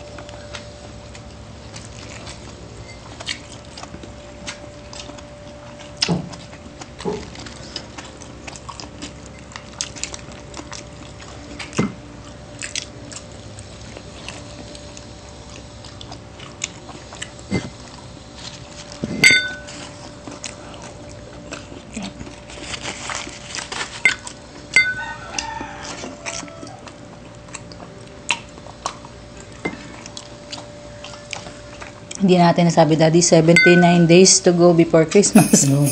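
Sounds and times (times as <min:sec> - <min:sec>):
chewing and biting: 0:00.2 - 0:19.0, 0:19.6 - 0:32.2
dish clinking: 0:19.2 - 0:19.6, 0:35.4 - 0:35.9.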